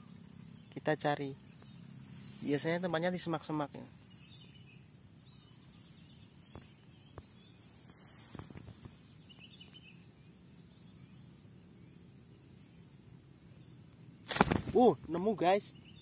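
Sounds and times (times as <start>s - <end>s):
insect drone: 0.0s - 16.0s
brief rustle: 7.8s - 9.0s, 14.3s - 14.8s.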